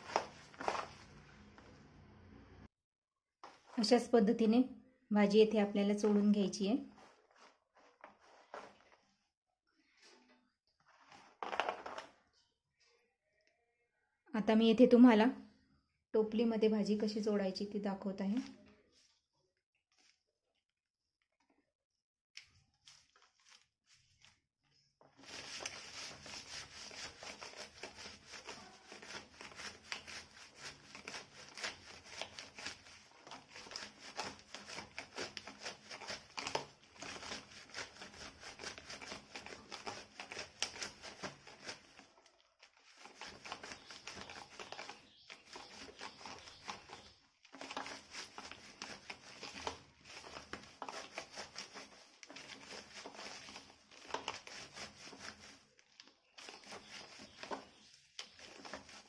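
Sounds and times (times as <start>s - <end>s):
leaves rubbed against wicker basket: 25.2s - 42.1s, 42.7s - 55.7s, 56.4s - 59.0s.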